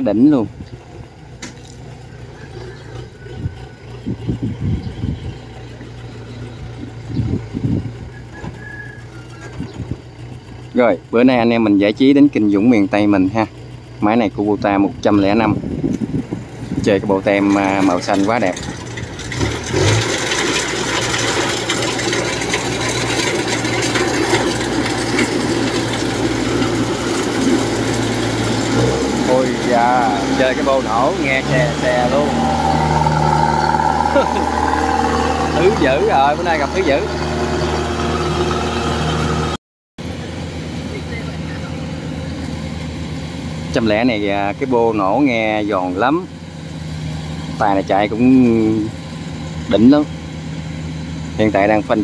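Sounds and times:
diesel engine humming: 0.0s - 52.0s
clatter of cutting machinery: 17.4s - 37.7s.

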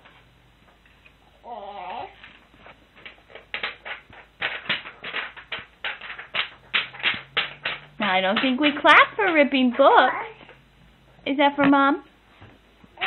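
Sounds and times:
baby clapping hands: 3.5s - 8.8s.

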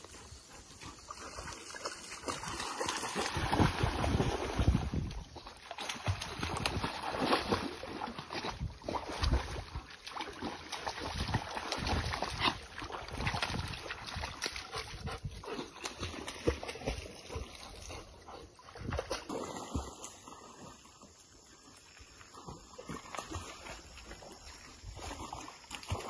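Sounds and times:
dogs splashing in water: 0.0s - 21.2s, 22.3s - 26.0s.

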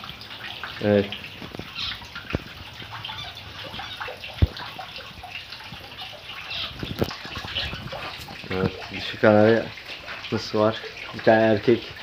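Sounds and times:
water splashing into pond: 0.0s - 12.0s
cage birds chirping: 0.4s - 9.2s.

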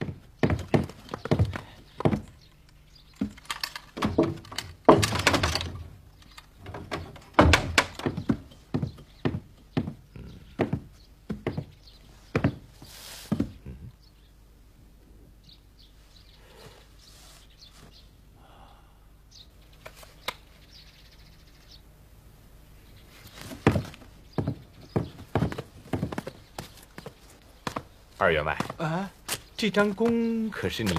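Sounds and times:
footsteps on wooden ladder: 0.0s - 13.7s, 23.2s - 30.9s.

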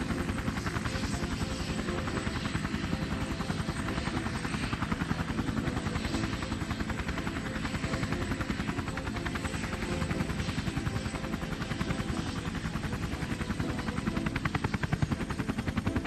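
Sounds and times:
helicopter rotor blades chopping: 0.0s - 16.0s.

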